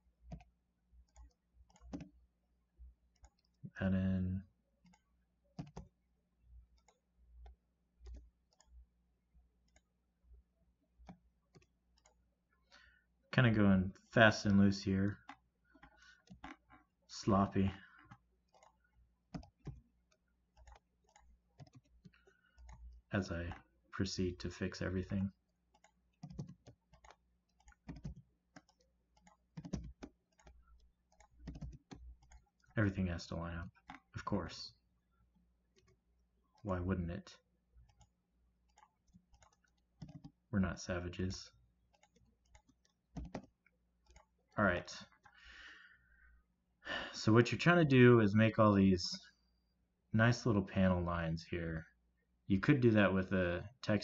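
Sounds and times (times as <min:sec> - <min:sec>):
mouse and keyboard clicks: 0:14.5 - 0:16.6, 0:18.1 - 0:23.6, 0:25.0 - 0:32.8, 0:38.7 - 0:40.4, 0:41.9 - 0:44.3.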